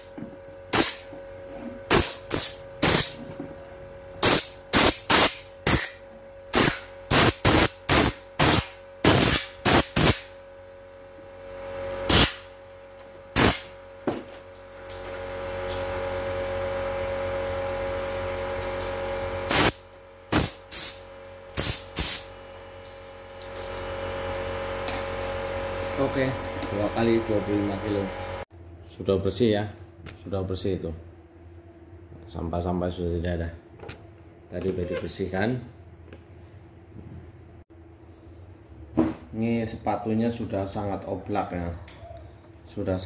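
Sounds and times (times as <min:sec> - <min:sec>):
air blow gun blasts: 0:00.7 - 0:01.1, 0:01.9 - 0:03.2, 0:04.2 - 0:05.9, 0:06.5 - 0:10.3, 0:12.1 - 0:12.5, 0:13.4 - 0:13.7, 0:19.5 - 0:21.0.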